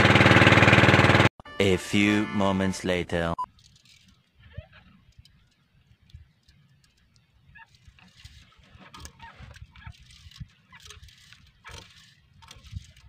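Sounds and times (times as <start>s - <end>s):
short squeaks: 3.4s - 5.4s, 6.7s - 13.0s
fishing line spool clicking and rattling: 3.5s - 13.0s.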